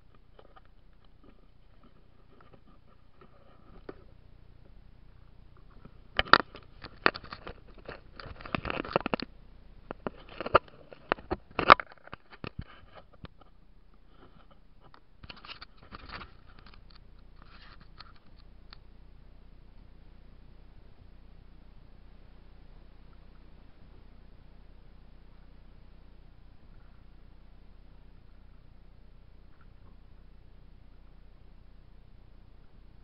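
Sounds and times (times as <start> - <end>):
camera scratching and clicking: 5.8 - 9.3, 9.9 - 13.5, 14.2 - 18.8.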